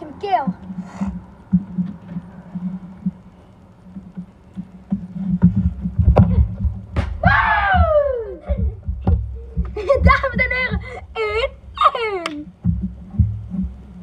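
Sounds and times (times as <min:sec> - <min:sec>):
football being kicked: 0:06.0 - 0:07.9.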